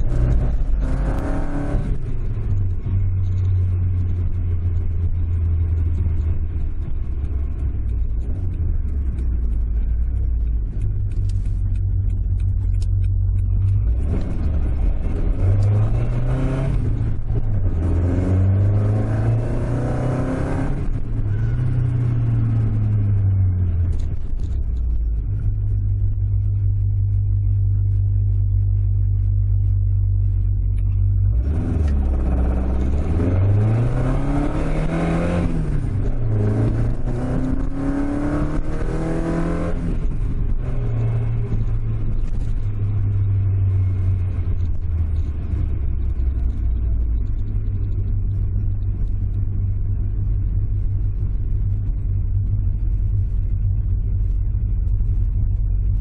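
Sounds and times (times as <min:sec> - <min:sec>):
car engine revving: 0:00.0 - 0:56.0.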